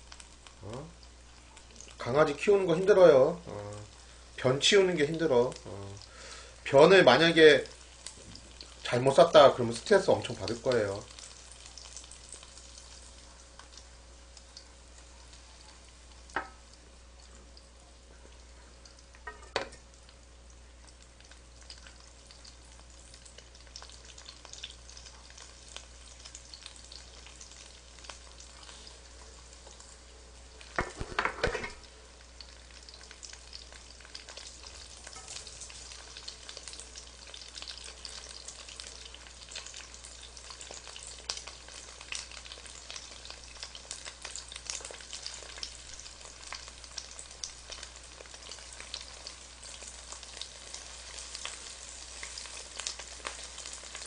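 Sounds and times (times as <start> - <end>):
pancakes sizzling in hot oil: 0.0 - 54.0
chopsticks stirring in pan: 33.0 - 47.1.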